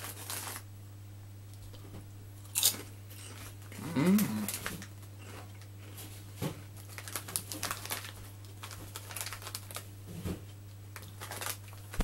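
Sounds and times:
crisp packet crinkling: 0.0s - 0.6s, 2.6s - 5.7s, 6.8s - 9.9s, 10.9s - 12.0s.

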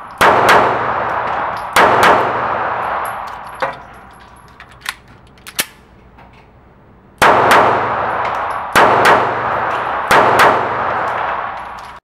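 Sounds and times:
pistol shots reverberating indoors: 0.0s - 5.8s, 7.2s - 12.0s
pistol metallic clicks: 2.9s - 6.0s.

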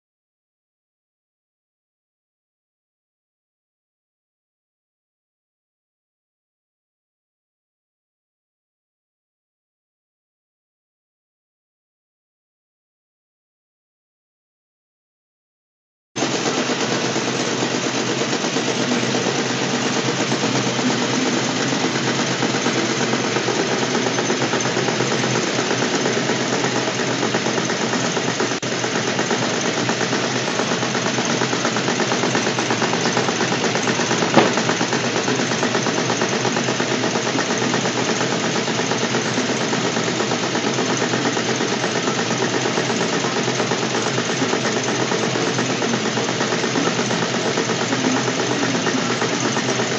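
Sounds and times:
sewing machine clatter: 16.2s - 49.9s.

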